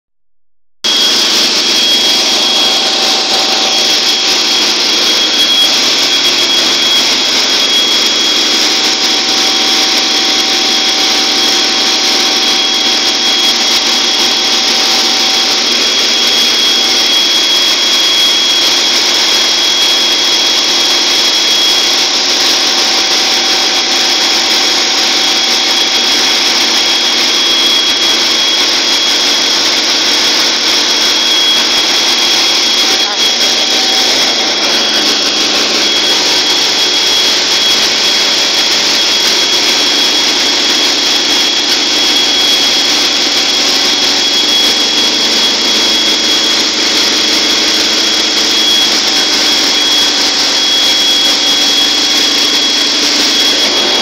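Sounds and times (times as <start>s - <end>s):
constant high whine: 0.8s - 54.0s
marine diesel engine running: 0.9s - 16.3s, 31.2s - 38.2s.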